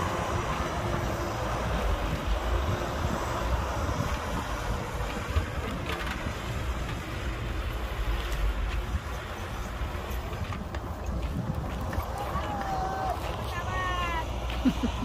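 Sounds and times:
diesel machinery rumbling: 0.0 - 15.0.

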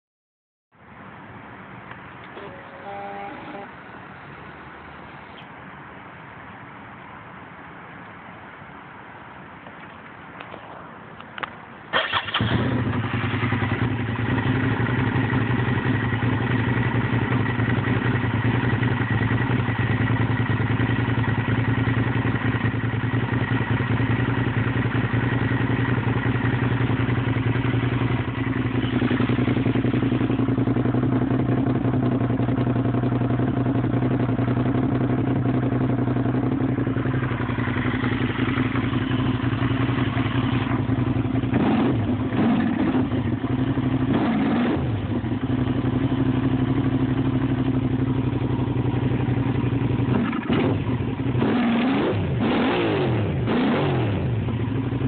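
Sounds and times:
motorcycle engine idling: 12.0 - 51.5, 54.1 - 55.0.

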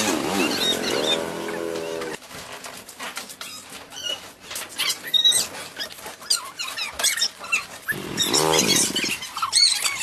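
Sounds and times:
animal cry: 0.3 - 2.2, 4.8 - 10.0.

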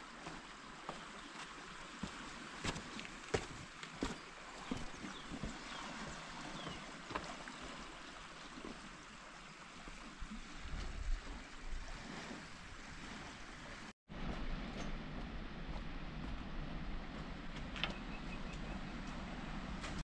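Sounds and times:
steady outdoor noise: 0.0 - 20.0
low rumble: 14.1 - 20.0.

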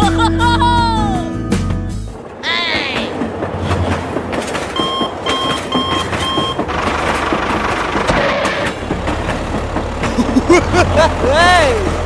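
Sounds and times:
short electronic warning beeps: 4.8 - 6.6.

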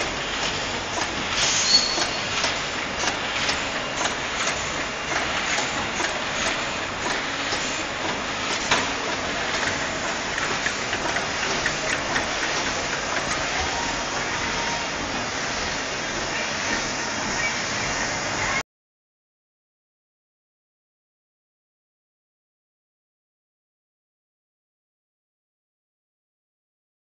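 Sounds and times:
packaging machines running: 0.0 - 18.6.

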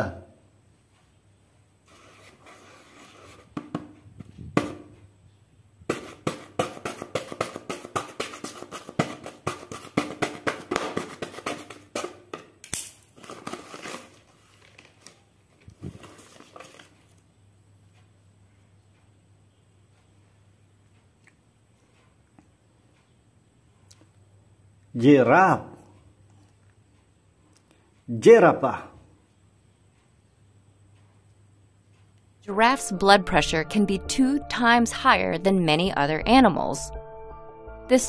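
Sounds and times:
paper crinkling: 13.1 - 17.2.

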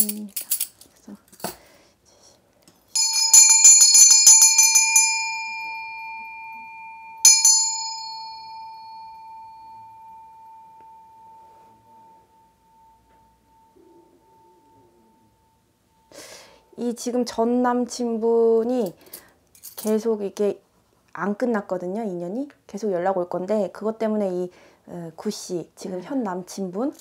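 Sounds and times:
brass hand bell ringing: 3.0 - 16.2.

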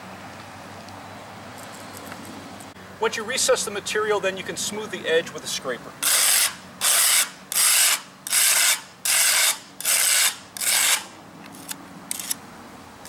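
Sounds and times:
scraper blade on concrete: 6.0 - 12.4.

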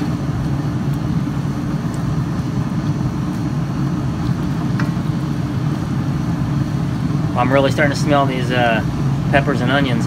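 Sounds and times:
low mechanical hum: 0.0 - 10.0.

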